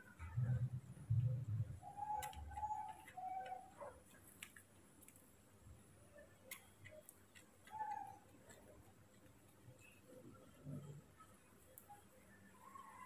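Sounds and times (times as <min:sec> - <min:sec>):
baby monkey coo-like calls: 0:01.8 - 0:03.8.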